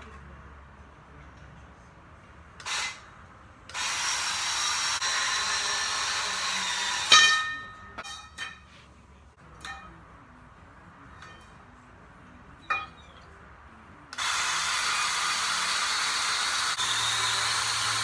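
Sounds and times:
power tool cutting metal tubing: 2.6s - 3.0s, 3.7s - 7.5s, 14.1s - 18.0s
ringing metal clang: 7.1s - 8.8s, 9.4s - 10.2s, 11.0s - 11.8s, 12.6s - 13.4s.

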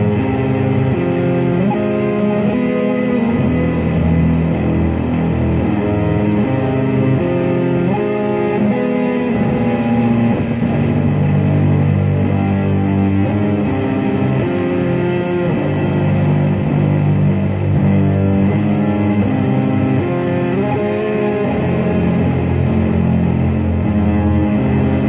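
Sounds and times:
ambient guitar notes: 0.0s - 25.0s.

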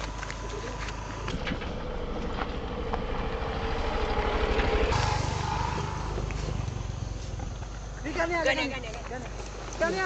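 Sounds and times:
scooter engine passing by: 1.1s - 8.8s.

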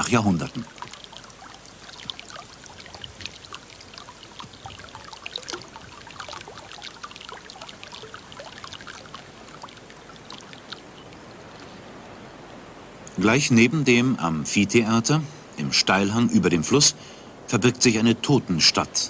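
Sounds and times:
water trickling and gurgling: 0.0s - 13.2s.

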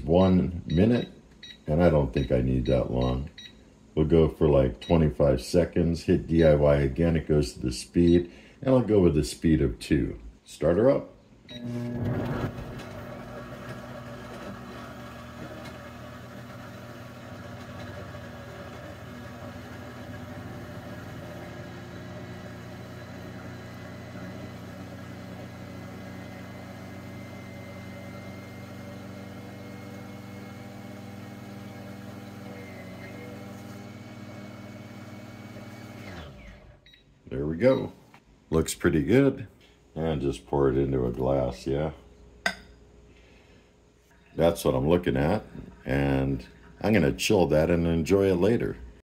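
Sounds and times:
muffled blender motor running: 11.6s - 36.8s.

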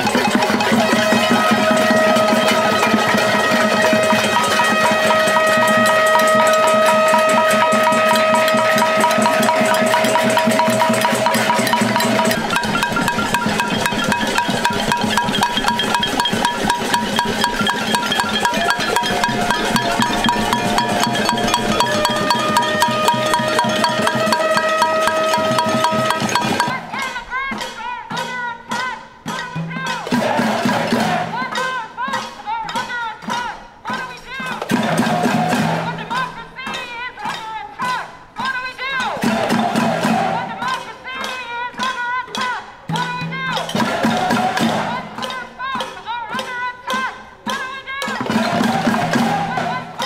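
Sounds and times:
crowd banging pots and pans: 0.0s - 50.0s.

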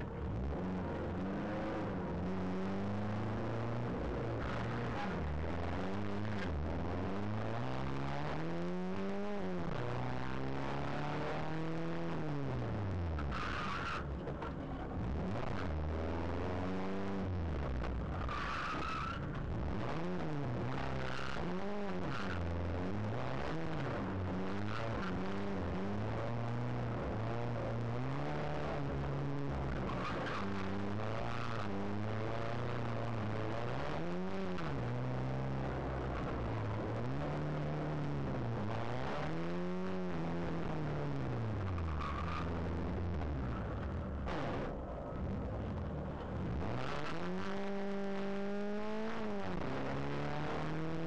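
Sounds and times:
rally car engine revving: 0.0s - 51.0s.

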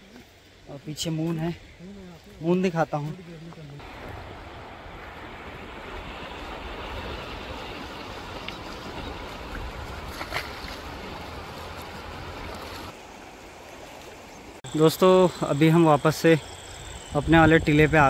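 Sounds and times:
wind on microphone: 3.8s - 12.9s, 16.8s - 18.0s.

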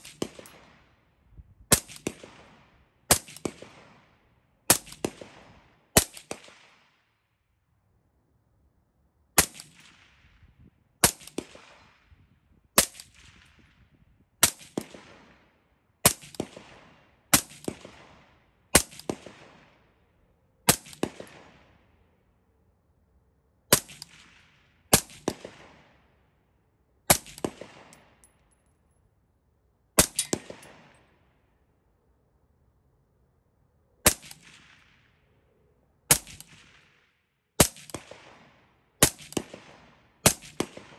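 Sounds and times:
suppressed rifle shots: 27.1s - 28.1s, 30.0s - 31.1s, 36.1s - 37.0s, 37.6s - 40.9s.

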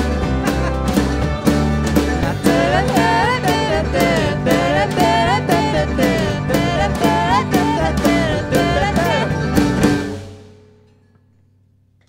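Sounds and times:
electric bass: 0.0s - 10.5s
drum kit steady beat: 0.0s - 10.6s
banjo: 0.0s - 10.7s
mandolin: 0.0s - 11.5s
acoustic guitar: 0.0s - 12.0s
voices singing: 2.0s - 10.1s.

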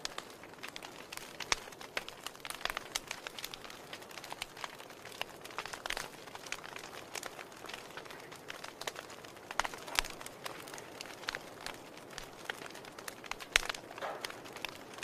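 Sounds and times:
wood fire crackling: 0.0s - 15.0s.

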